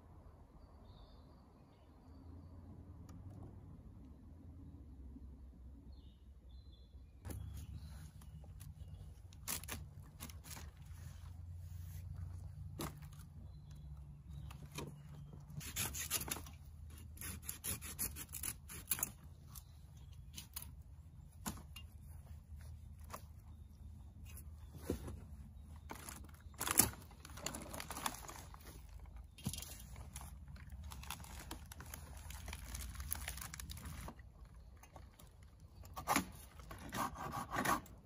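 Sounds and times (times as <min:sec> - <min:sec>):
hand saw cutting wood: 0:15.6 - 0:19.2, 0:36.1 - 0:38.0.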